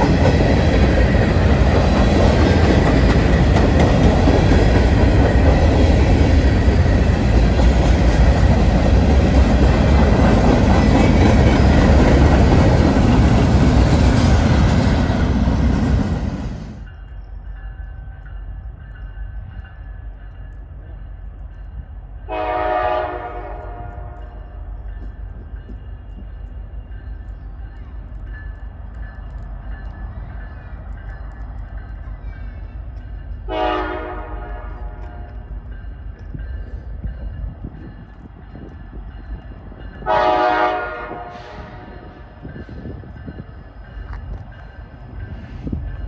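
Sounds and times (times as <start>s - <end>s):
freight train rumble: 0.0s - 46.0s
locomotive air horn chord: 22.3s - 24.2s, 33.5s - 35.3s, 40.0s - 41.9s.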